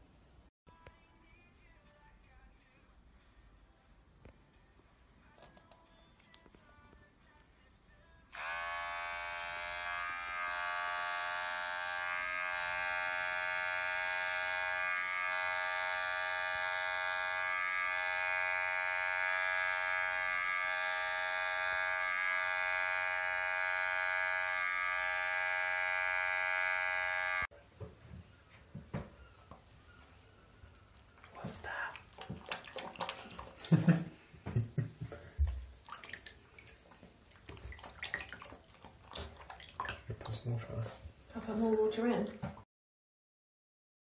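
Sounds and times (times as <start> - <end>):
electric hair clipper buzzing: 8.3 - 27.5.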